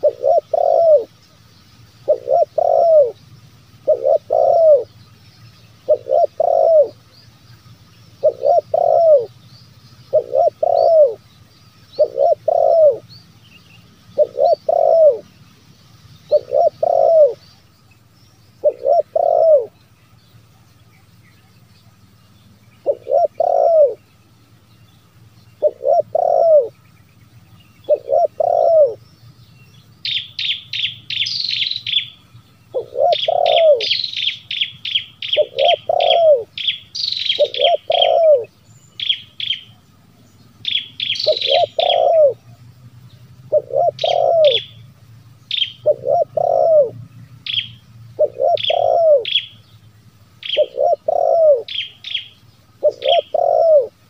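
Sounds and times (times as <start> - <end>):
dove cooing: 0.0 - 1.2, 2.0 - 3.2, 3.8 - 5.0, 5.8 - 7.1, 8.1 - 9.4, 10.1 - 11.3, 11.9 - 13.1, 14.1 - 15.3, 16.3 - 17.4, 18.6 - 19.8, 22.8 - 24.0, 25.6 - 26.8, 27.8 - 29.0, 30.1 - 39.7, 40.7 - 42.5, 43.5 - 44.8, 45.5 - 49.6, 50.4 - 54.0
small bird chirping: 0.0 - 54.0.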